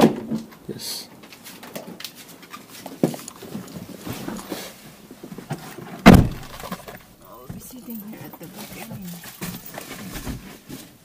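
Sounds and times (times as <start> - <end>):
rustling and small knocks: 0.0 - 11.0
car door shutting: 6.0 - 6.6.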